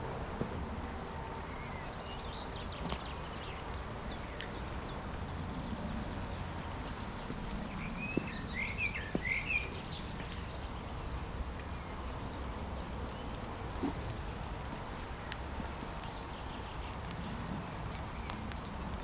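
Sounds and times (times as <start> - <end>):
low steady rumble: 0.0 - 19.0
bird chirps: 1.1 - 14.1
faint clicks: 2.6 - 8.4, 12.9 - 19.0.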